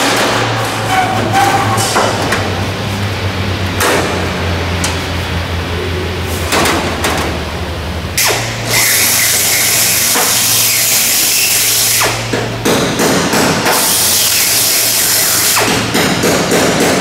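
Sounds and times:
power tool cutting metal: 8.2 - 12.3, 13.7 - 16.0.

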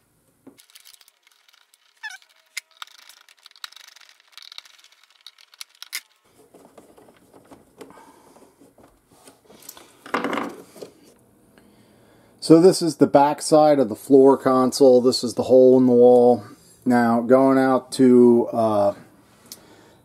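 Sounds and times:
hands clicking and rustling wires: 0.4 - 11.0
falling squeak: 1.8 - 3.2.

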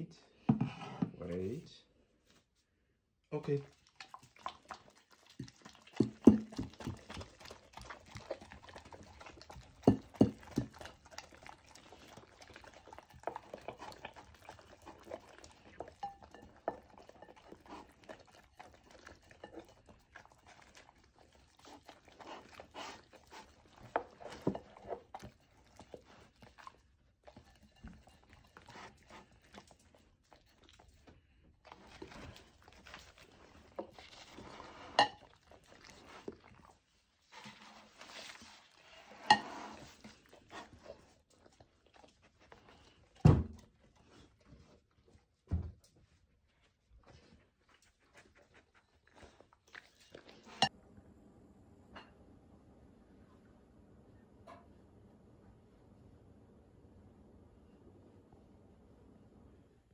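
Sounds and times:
dogs lapping food: 3.4 - 50.8
tongues clicking against plates: 3.7 - 30.8, 34.9 - 36.6.

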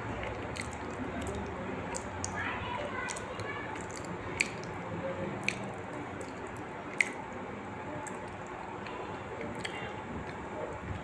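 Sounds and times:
wet mouth clicks: 0.2 - 2.4, 3.0 - 4.8, 5.4 - 7.3, 8.0 - 10.4.

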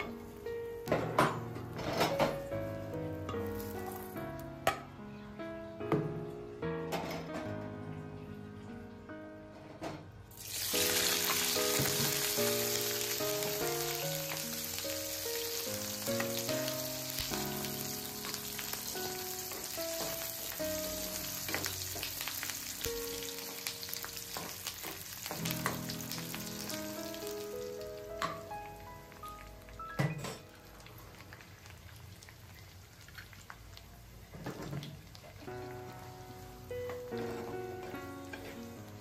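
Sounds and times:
background music: 0.0 - 30.9
food sizzling in hot oil: 3.4 - 4.2, 10.3 - 29.8, 30.5 - 39.0.

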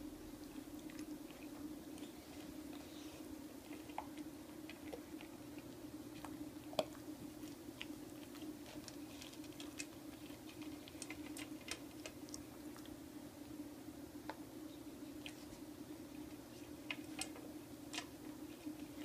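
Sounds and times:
steady low hum: 0.0 - 19.0
dog crunching kibble: 3.6 - 13.0.

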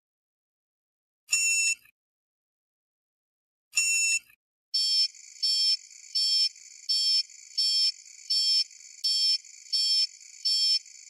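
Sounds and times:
buzzy electronic alarm beeps: 4.8 - 10.9.

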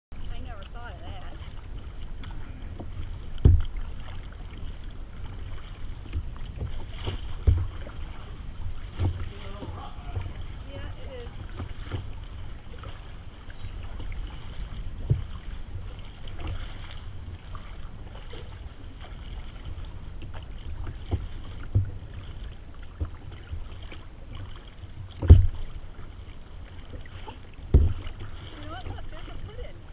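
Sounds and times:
paddles splashing in water: 0.1 - 29.9
sharp knocks: 25.2 - 25.6.

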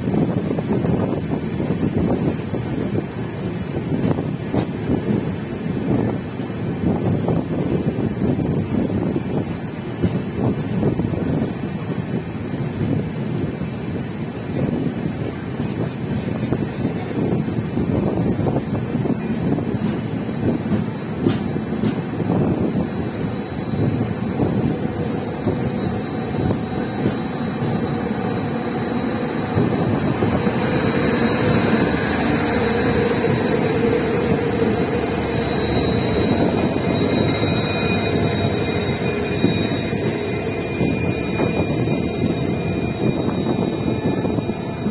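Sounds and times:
train wheels rumbling on rails: 0.0 - 44.9
rushing air: 19.5 - 44.9
faint high whine: 23.0 - 44.9.

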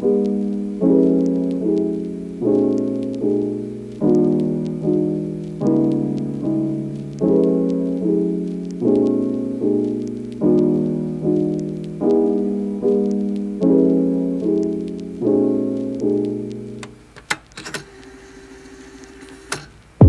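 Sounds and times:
piano chords: 0.0 - 17.1.

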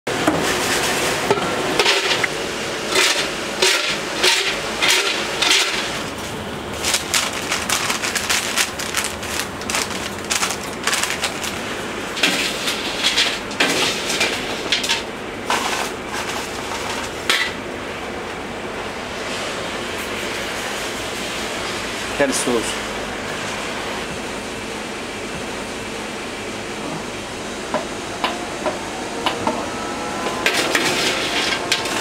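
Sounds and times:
steady low hum: 1.2 - 32.0
paper cone crinkling: 6.7 - 11.7
fries scraped in metal drainer: 30.4 - 32.0.

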